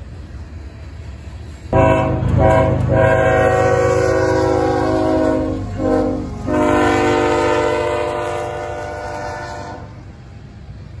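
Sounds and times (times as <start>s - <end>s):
freight train rumble: 0.0s - 11.0s
locomotive air horn: 1.7s - 10.0s.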